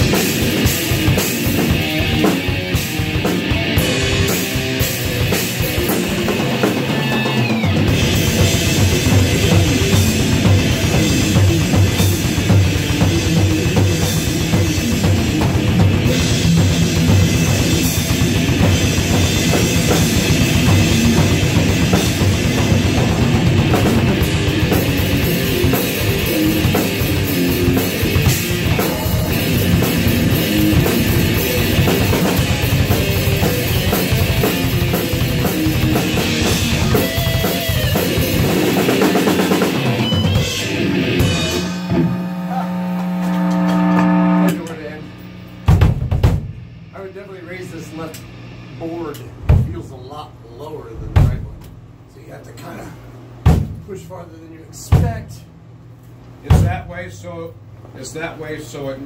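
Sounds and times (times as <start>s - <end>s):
heavy metal guitar and drums: 0.0s - 49.9s
bass drum: 7.7s - 46.9s.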